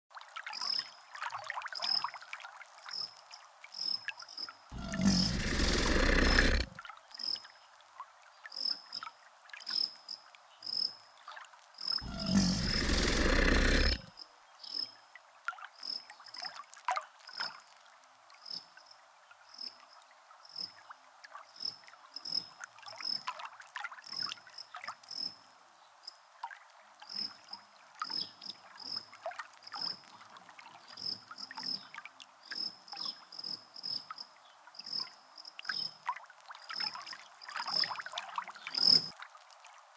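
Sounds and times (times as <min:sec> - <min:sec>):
crickets chirping: 0:03.8 - 0:07.4, 0:11.8 - 0:14.0
loud deep roar: 0:04.8 - 0:06.7, 0:12.0 - 0:14.0.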